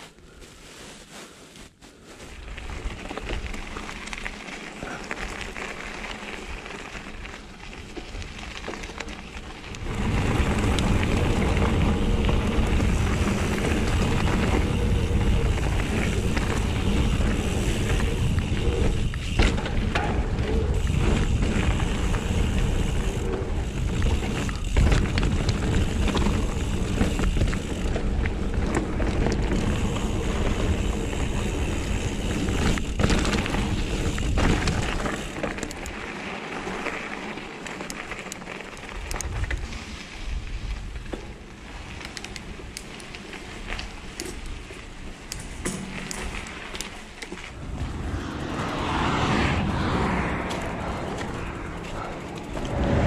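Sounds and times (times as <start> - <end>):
bike tyres rumbling on dirt: 0.0 - 53.0
bike knocking over bumps: 16.2 - 22.6
wind buffeting microphone: 47.5 - 53.0.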